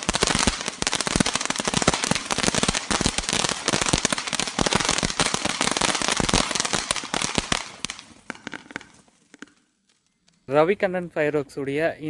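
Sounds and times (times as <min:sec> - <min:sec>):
crackling firework burning: 0:00.0 - 0:10.6.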